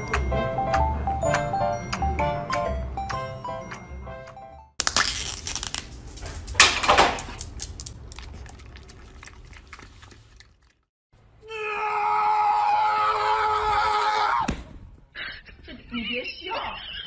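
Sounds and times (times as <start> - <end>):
packaging crinkling and tearing: 4.8 - 8.8.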